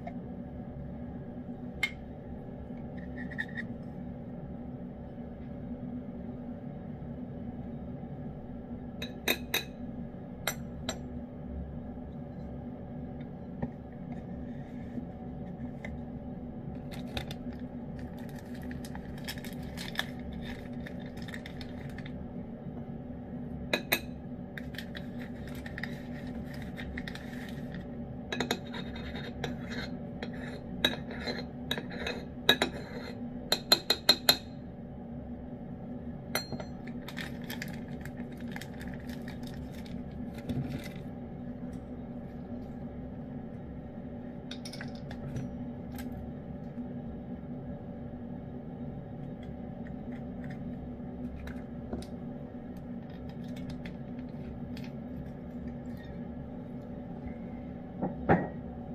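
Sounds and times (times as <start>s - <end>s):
spoon scraping tin can: 3.0s - 3.7s
low hum: 34.5s - 58.9s.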